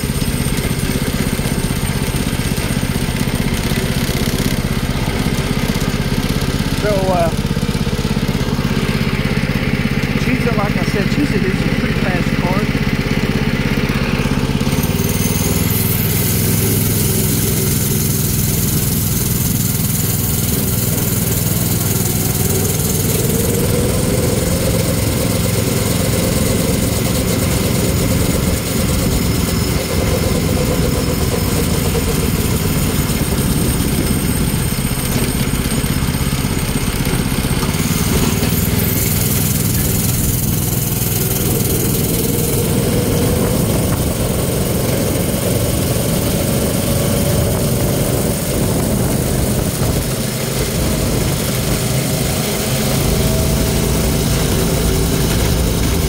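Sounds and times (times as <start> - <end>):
go-kart engine running: 0.0 - 56.0
wind noise on microphone: 46.6 - 51.4.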